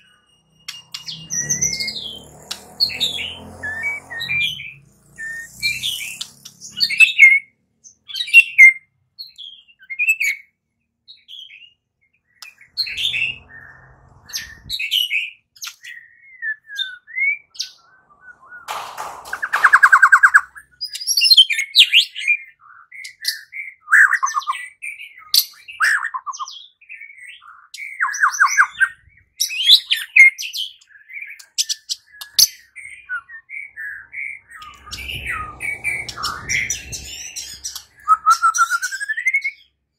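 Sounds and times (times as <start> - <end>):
bird singing whistled phrases: 2.9 - 7.5, 12.6 - 18.7, 19.5 - 39.7
bird harsh rattle: 18.7 - 20.4.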